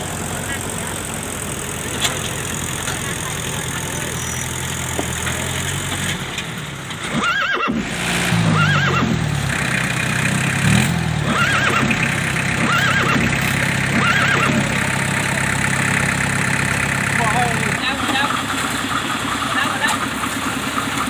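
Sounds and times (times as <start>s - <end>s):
tractor diesel engine running: 0.0s - 21.0s
high squeal rising and falling: 7.2s - 9.2s, 11.2s - 14.9s.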